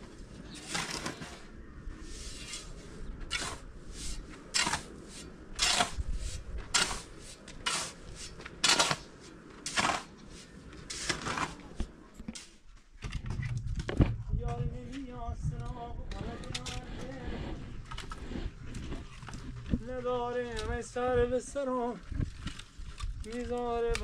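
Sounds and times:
shovel scraping sand: 0.2s - 12.6s, 16.1s - 20.6s.

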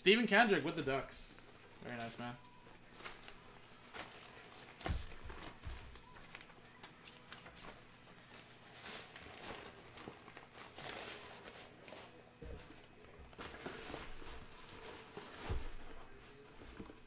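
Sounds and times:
packaging rustling: 1.6s - 12.2s.

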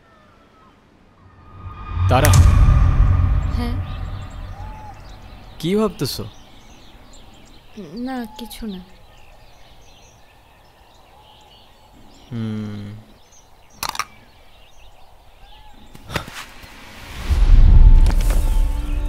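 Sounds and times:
low hum: 1.2s - 5.9s
birds chirping: 4.0s - 16.1s.

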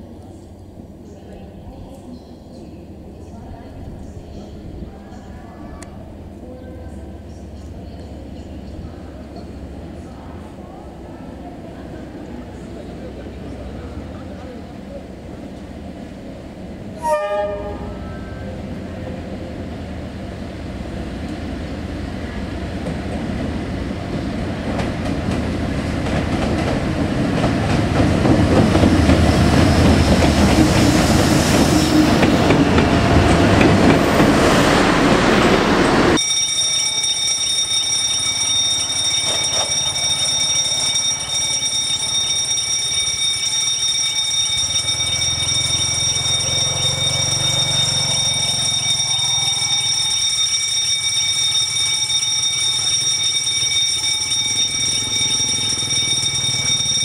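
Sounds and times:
locomotive engine and wheel rumble: 0.0s - 36.2s, 36.9s - 57.0s
train horn toot: 17.0s - 18.3s
steady high-pitched tones: 35.9s - 57.0s.

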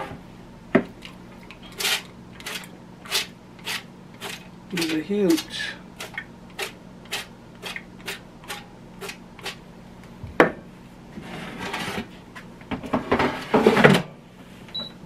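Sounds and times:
air fryer drawer scraping and clattering: 11.2s - 12.2s, 12.8s - 14.1s.

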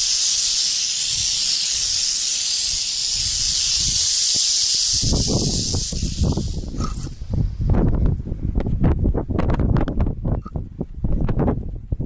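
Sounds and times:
rattlesnakes rattling: 0.0s - 7.7s.

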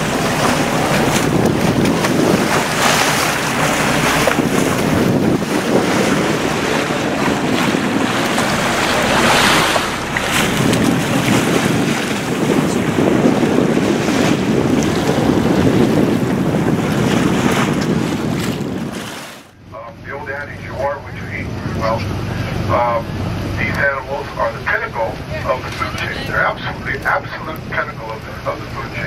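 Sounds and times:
wind buffeting microphone: 0.0s - 19.5s
water rushing along boat hull: 0.0s - 29.0s.

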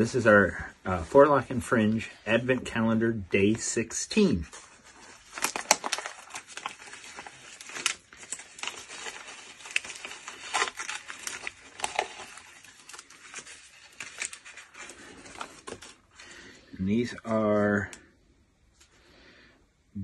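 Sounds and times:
tissue paper crinkling: 4.2s - 16.5s.

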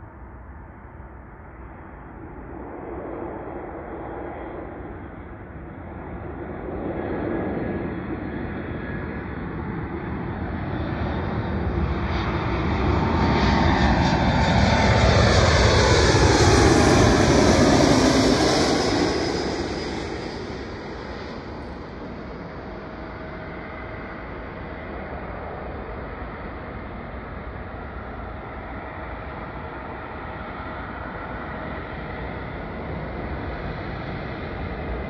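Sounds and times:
jet airliner passing: 0.0s - 35.0s.

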